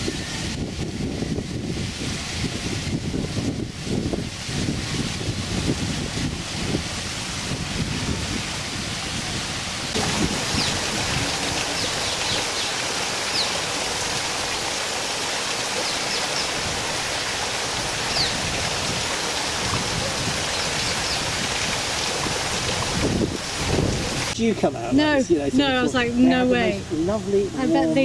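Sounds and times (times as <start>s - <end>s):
waterfall splashing into pond: 0.0s - 25.8s.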